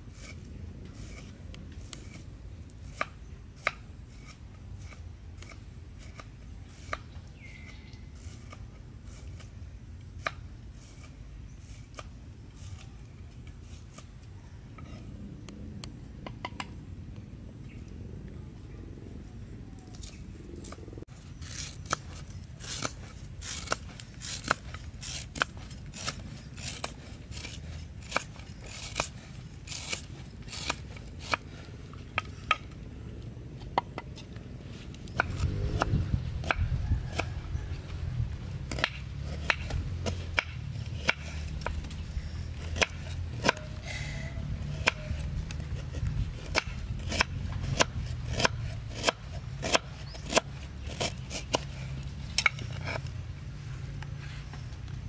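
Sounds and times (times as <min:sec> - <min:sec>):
knife slicing roots: 0:21.4 - 0:31.4, 0:38.7 - 0:43.8, 0:44.6 - 0:53.2
low rumble: 0:34.3 - 0:43.2.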